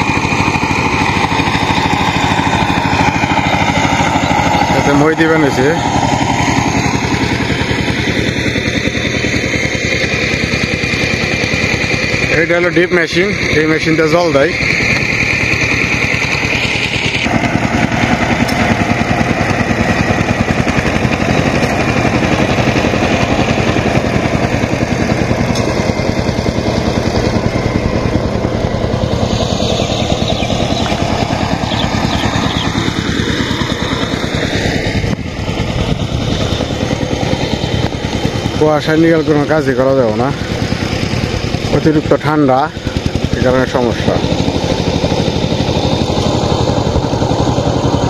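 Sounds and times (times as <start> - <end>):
engine chugging steadily: 0.0 - 48.0.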